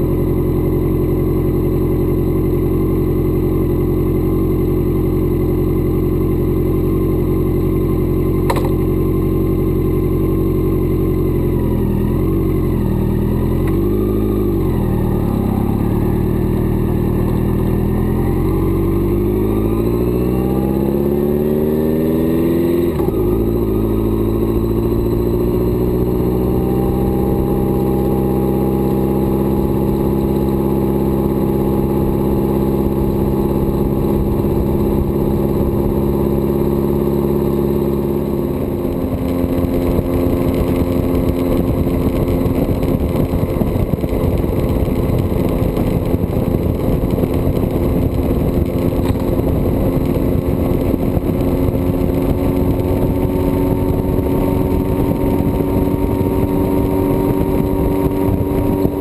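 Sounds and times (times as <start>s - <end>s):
motorcycle engine running: 0.0s - 59.0s
wind noise: 38.4s - 59.0s.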